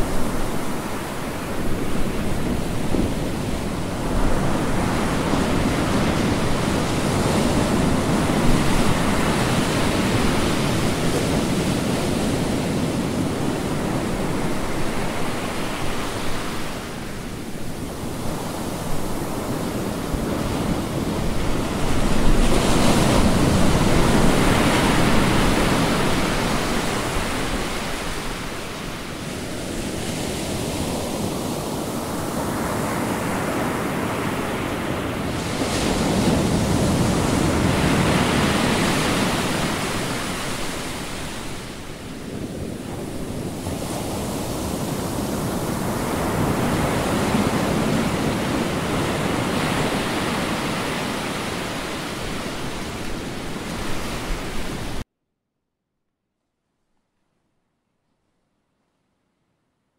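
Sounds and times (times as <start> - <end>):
sea waves breaking on beach: 0.0 - 55.0.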